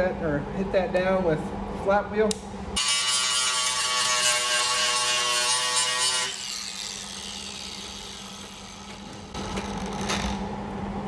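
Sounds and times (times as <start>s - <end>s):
angle grinder grinding metal: 2.8s - 10.2s
grinder winding down: 5.4s - 9.9s.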